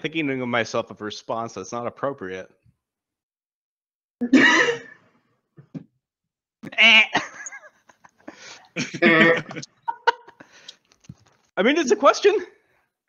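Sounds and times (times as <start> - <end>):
people laughing: 7.1 - 10.5.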